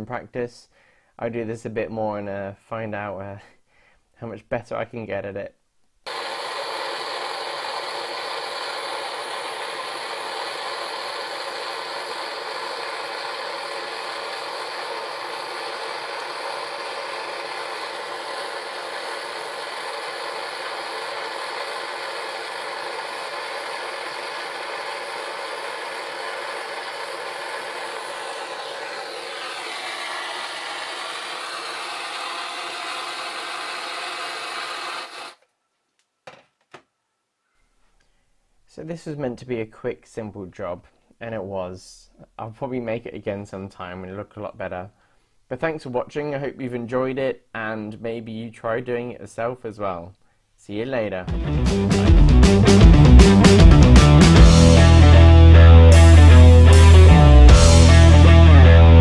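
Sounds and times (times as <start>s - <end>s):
blowtorch flame hissing: 6.1s - 35.4s.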